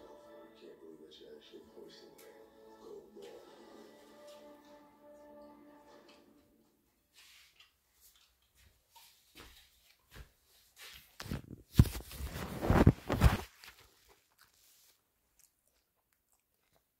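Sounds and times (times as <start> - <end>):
rustling and scraping over microphone: 8.9 - 15.0.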